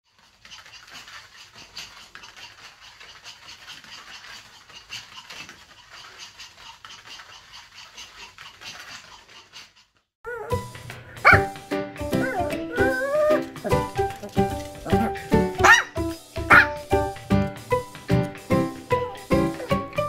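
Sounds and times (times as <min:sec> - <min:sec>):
dog feet pattering on a mat: 0:10.3 - 0:20.0.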